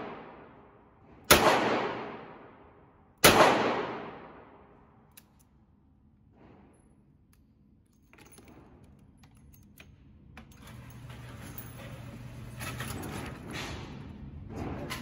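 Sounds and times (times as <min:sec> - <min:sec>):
metallic clicks of revolver handling: 0:05.1 - 0:05.6.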